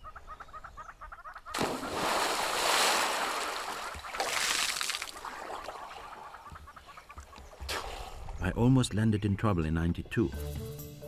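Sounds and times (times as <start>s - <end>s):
body splashing into water: 1.5s - 6.1s
water splashing and sloshing: 1.5s - 8.4s.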